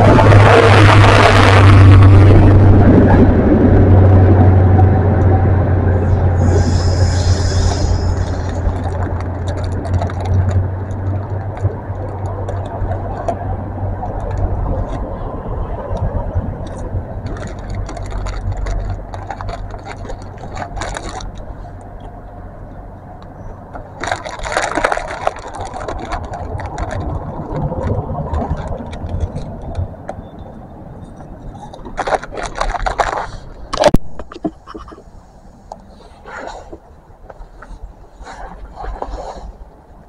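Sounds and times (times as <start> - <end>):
bursts of train noise: 0.0 - 9.5
train engine rumble: 0.0 - 32.4.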